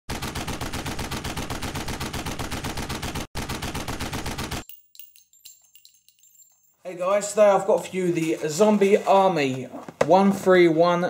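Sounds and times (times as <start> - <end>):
rapid automatic gunfire: 0.1 - 4.6.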